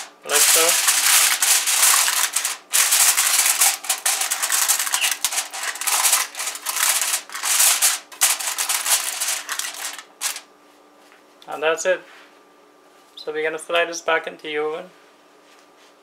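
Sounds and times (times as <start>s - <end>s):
aluminium foil crinkling: 0.0s - 10.5s.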